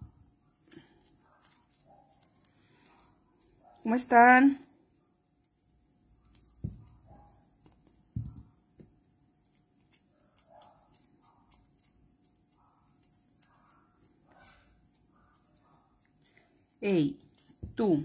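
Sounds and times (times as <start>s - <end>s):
dull thumps: 8.1s - 8.9s.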